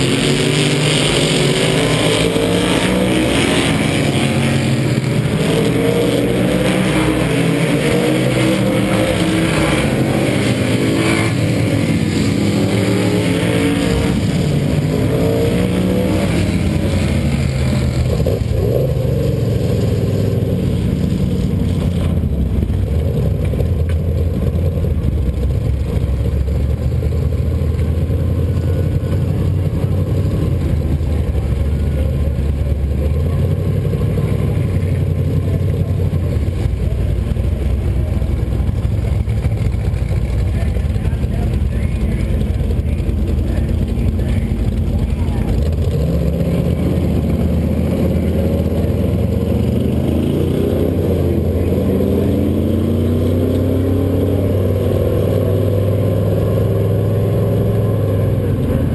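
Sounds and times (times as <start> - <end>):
low engine drone up close: 0.0 - 58.9
race car engines passing: 0.0 - 58.9.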